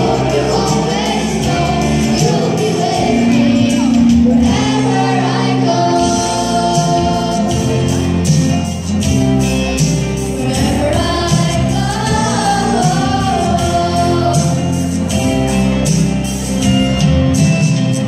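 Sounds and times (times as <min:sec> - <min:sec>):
children's choir singing: 0:00.0 - 0:08.3, 0:10.4 - 0:14.9
backing music with steady beat: 0:00.0 - 0:18.0.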